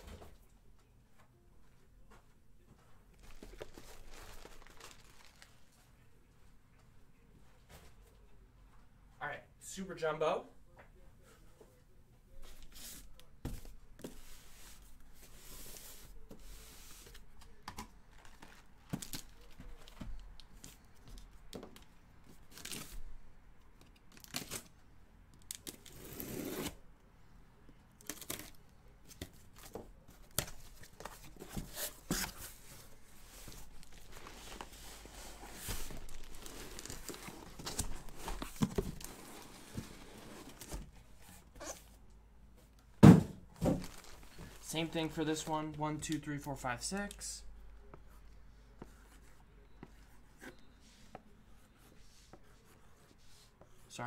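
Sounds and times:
cardboard tearing and rustling: 33.5 - 40.9
cardboard case knocks: 43.0 - 43.8.

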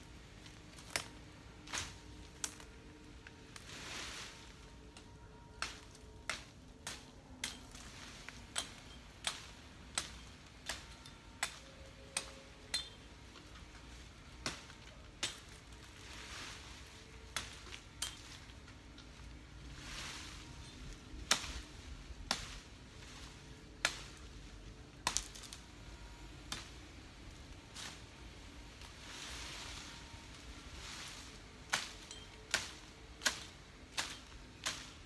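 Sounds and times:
leaves rustling: 0.0 - 35.0.

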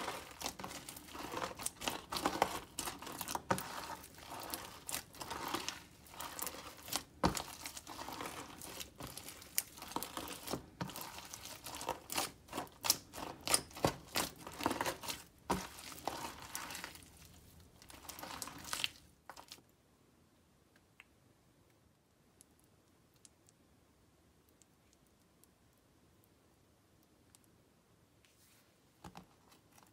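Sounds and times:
slime crackling and popping: 0.0 - 17.1.

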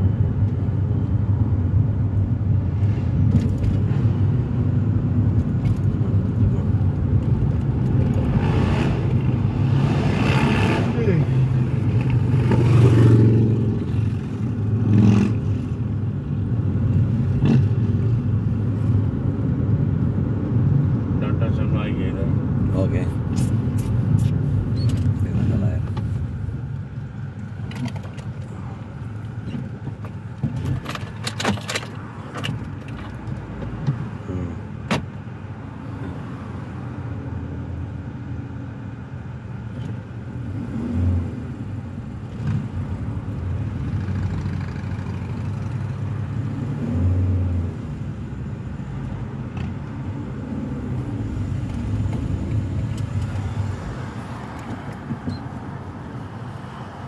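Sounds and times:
car engine and road noise: 0.0 - 57.0
sharp clicks and rattles: 29.5 - 33.7.

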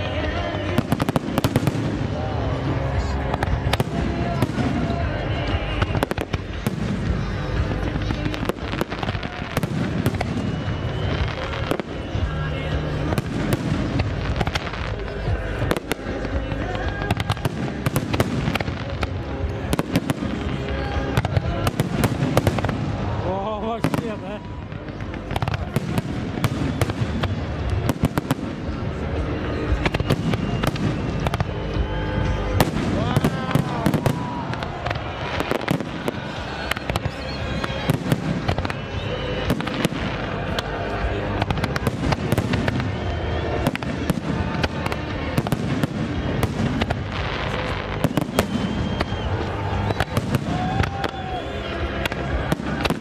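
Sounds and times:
fireworks bangs and crackles: 0.0 - 53.0
thin high whistle: 48.0 - 52.0.

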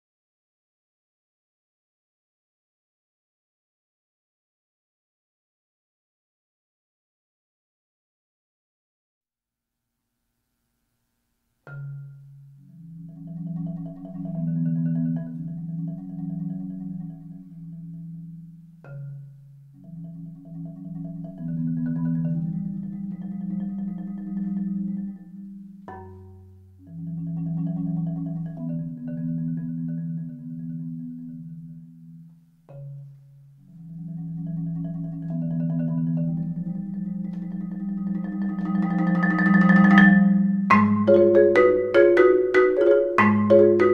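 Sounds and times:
marimba chords: 11.7 - 43.9.

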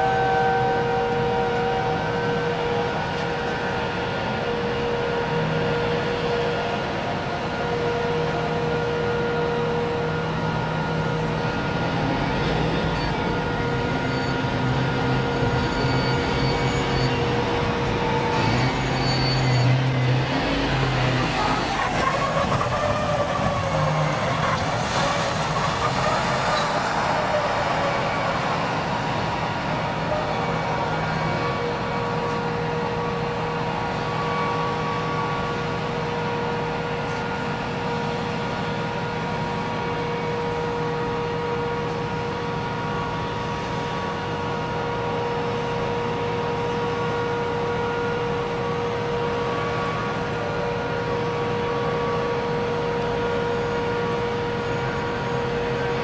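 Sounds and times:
high whining tones: 11.1 - 29.4.

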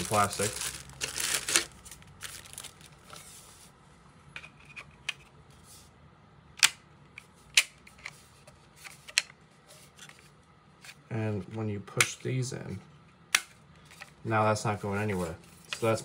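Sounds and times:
plastic bag crinkling: 0.0 - 3.2.

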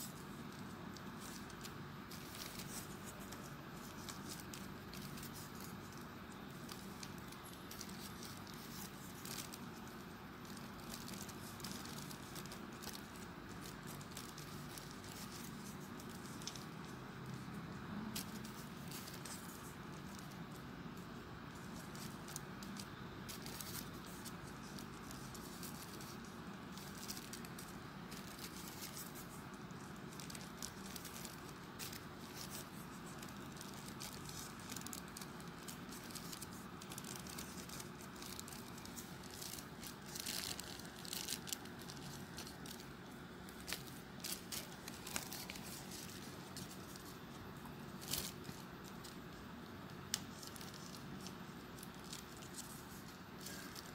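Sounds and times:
faint background hiss: 0.0 - 53.9
paper rustling and crinkling: 0.0 - 53.9.

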